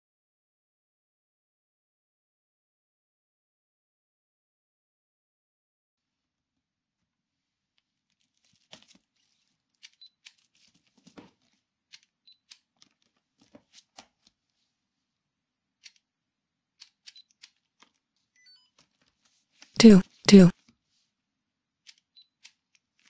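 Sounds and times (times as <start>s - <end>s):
book pages rustling: 7.6s - 14.9s, 16.9s - 21.2s.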